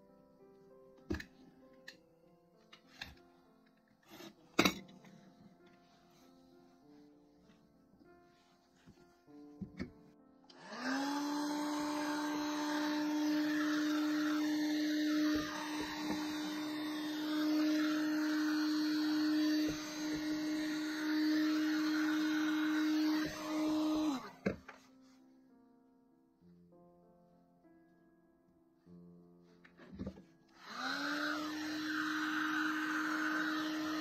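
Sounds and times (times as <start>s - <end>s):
heat gun fan whine: 10.5s - 24.6s, 30.6s - 34.0s.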